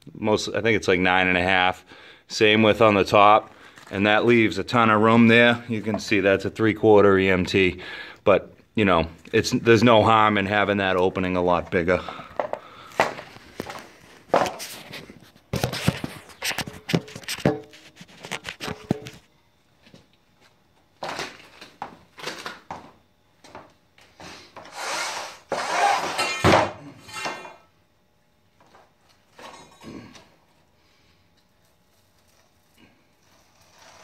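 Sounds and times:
knocks and scrapes on wood: 0:14.3 - 0:19.2.

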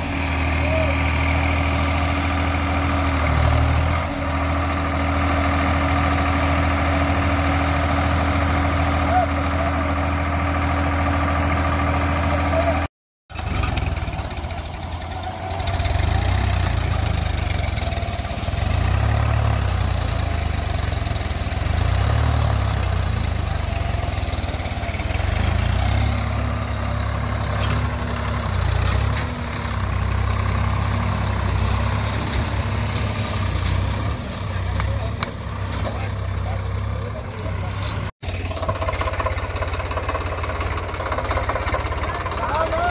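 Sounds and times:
tractor diesel engine rumbling: 0:00.0 - 0:42.9.

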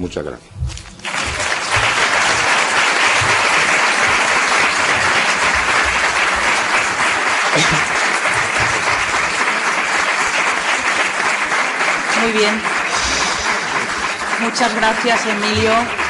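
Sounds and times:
audience applauding: 0:00.8 - 0:16.0
speaker talking: 0:12.1 - 0:16.0.

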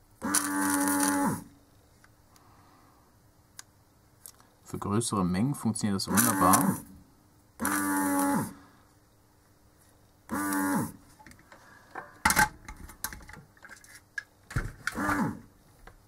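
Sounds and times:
desoldering pump buzzing: 0:00.2 - 0:01.6, 0:06.1 - 0:07.0, 0:07.6 - 0:08.7, 0:10.3 - 0:11.0, 0:14.9 - 0:15.5.

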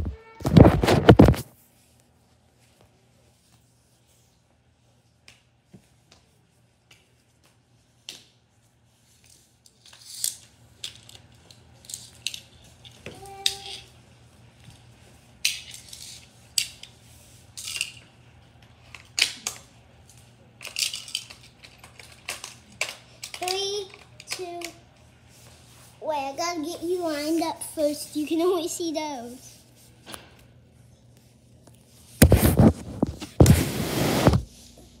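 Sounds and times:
toy pieces scraping and rattling: 0:09.7 - 0:13.8, 0:15.4 - 0:16.9, 0:20.6 - 0:24.8.

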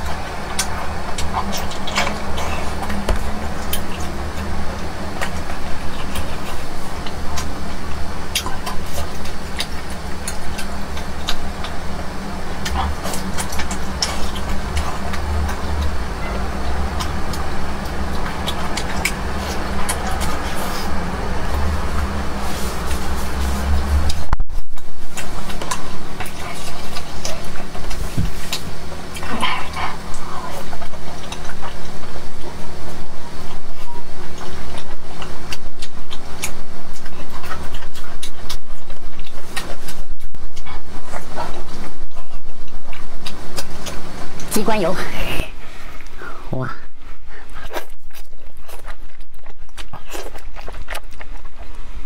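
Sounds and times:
close chewing and mouth clicks: 0:00.0 - 0:52.0
steady low hum: 0:00.0 - 0:52.0.

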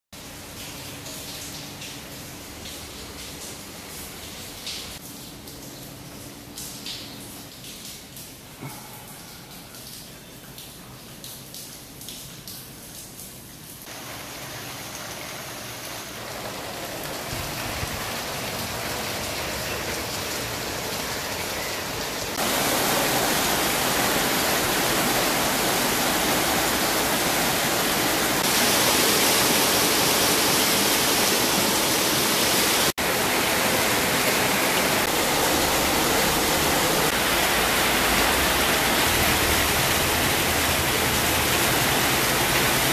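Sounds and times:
heavy rain on paving: 0:13.8 - 0:42.9.

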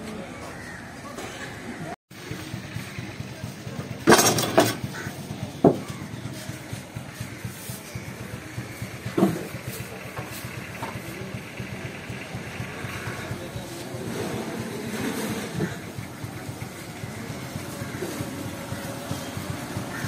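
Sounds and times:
steady engine-like hum: 0:01.8 - 0:20.0
knocks and clatters of handling: 0:04.0 - 0:05.0.

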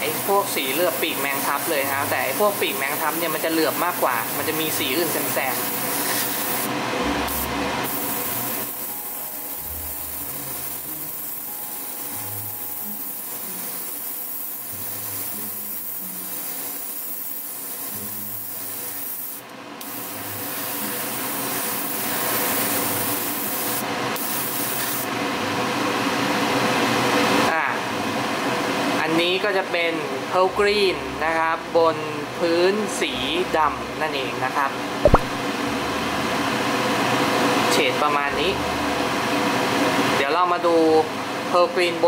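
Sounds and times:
airbrush hissing: 0:03.0 - 0:06.7, 0:07.3 - 0:25.1
steady hum: 0:06.4 - 0:13.6.

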